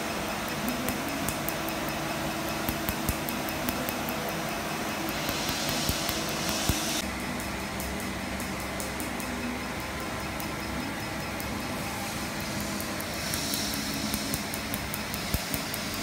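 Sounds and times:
laser unit hum and hiss: 0.0 - 16.0
laser pulse clicks: 0.1 - 16.0
cold air blowing through hose: 4.9 - 7.0, 11.8 - 16.0.

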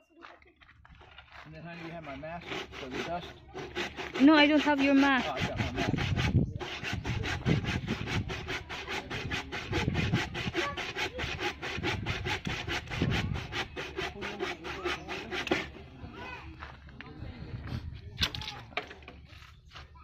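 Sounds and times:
handsaw cutting wood: 1.8 - 15.9.

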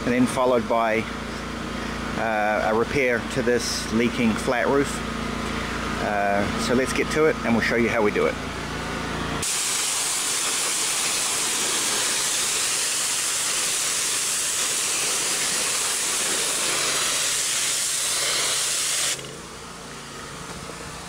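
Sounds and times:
machine hum: 0.0 - 21.0
water jet spraying: 9.4 - 19.4.

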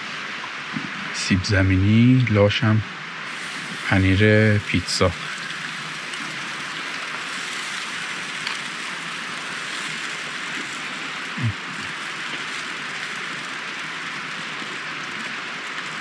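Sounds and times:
rain on a tarp: 3.2 - 16.0.

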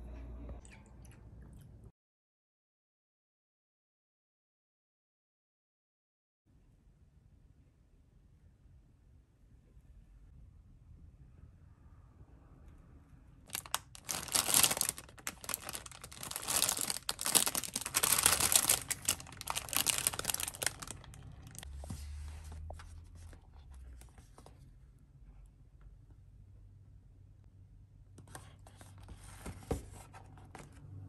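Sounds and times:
plastic packaging crinkling: 13.5 - 21.7.

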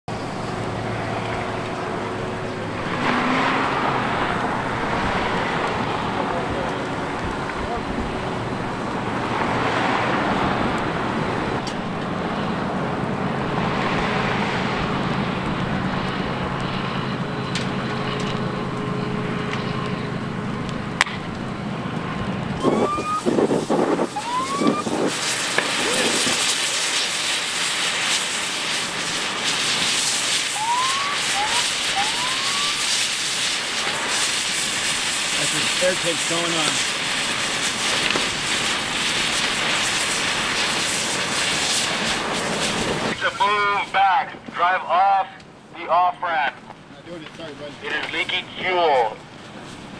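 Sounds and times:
pops and rising squeals: 0.1 - 7.6, 13.6 - 43.5
fire crackling: 0.1 - 49.9
roar of flames: 0.2 - 16.1, 19.2 - 43.2.

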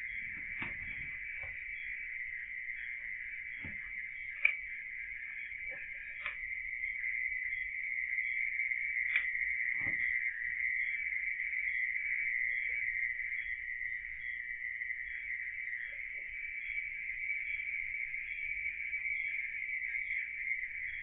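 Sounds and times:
crickets trilling: 0.0 - 21.0.

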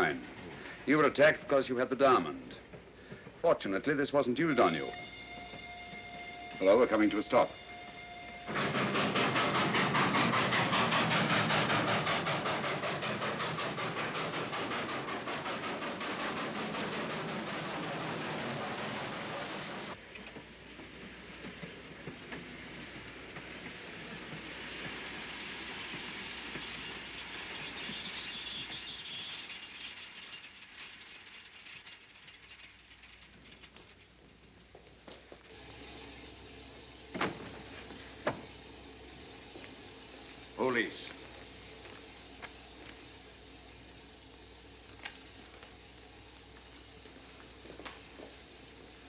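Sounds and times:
steam locomotive chuffing: 0.0 - 49.0
small clicks and rattles: 28.4 - 34.7.

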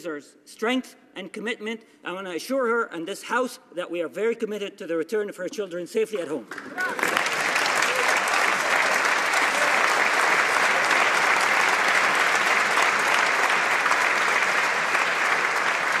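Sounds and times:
crowd applauding: 6.4 - 16.0.

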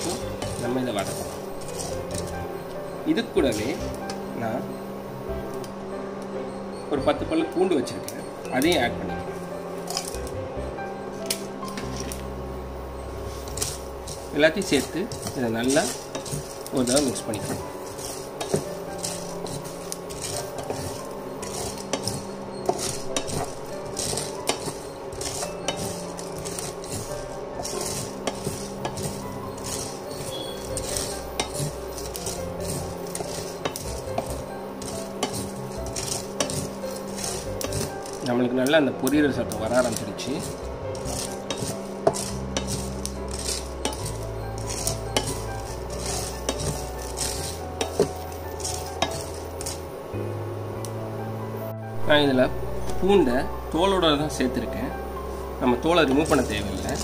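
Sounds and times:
spatula scraping frying pan: 0.0 - 2.8, 9.8 - 10.3, 13.1 - 38.3, 39.5 - 49.9, 55.7 - 57.0
seeds rattling and sizzling: 0.0 - 4.8, 7.0 - 10.4, 11.1 - 51.0, 52.0 - 57.0
light sizzle: 0.0 - 57.0
steady low hum: 0.0 - 57.0.

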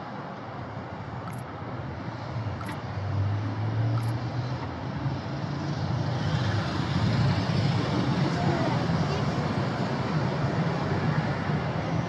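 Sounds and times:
traffic hum: 0.0 - 12.0
vehicle engine rumble: 0.6 - 11.9.

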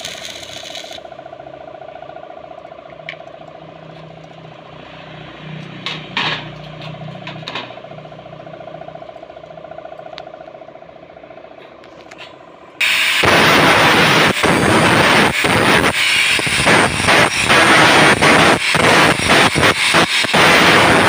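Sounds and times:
angle grinder grinding steel: 0.0 - 1.1, 12.8 - 21.0
low hum: 0.0 - 21.0.

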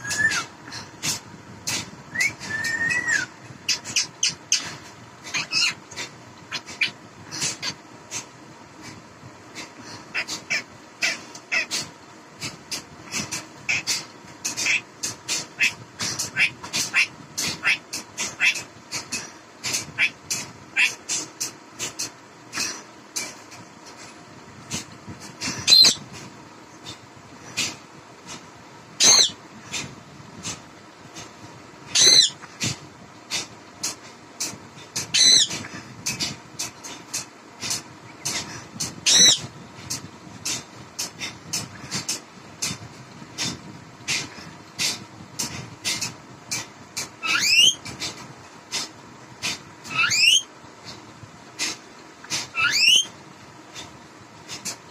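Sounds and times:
parakeet calling: 1.1 - 7.8, 10.1 - 11.9, 13.1 - 22.0, 25.4 - 26.1, 29.0 - 29.4, 31.9 - 32.5, 34.9 - 35.8, 38.2 - 39.5, 45.9 - 47.8, 49.8 - 50.5, 52.4 - 53.2
parakeet whistling: 2.2 - 4.6, 47.2 - 47.8, 49.9 - 50.5, 52.5 - 53.1.

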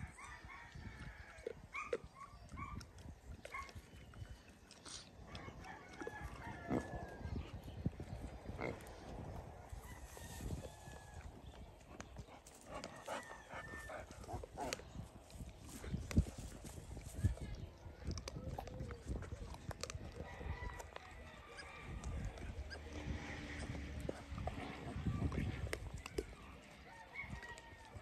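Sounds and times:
rustling in dry grass: 9.7 - 11.0.

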